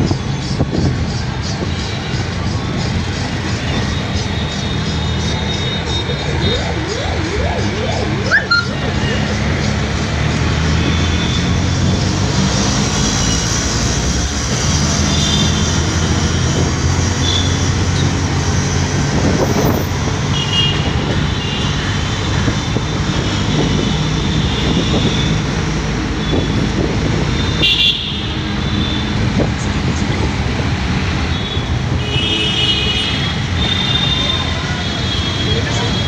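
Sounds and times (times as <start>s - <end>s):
vehicle horns tooting: 27.4s - 29.2s, 31.3s - 36.0s.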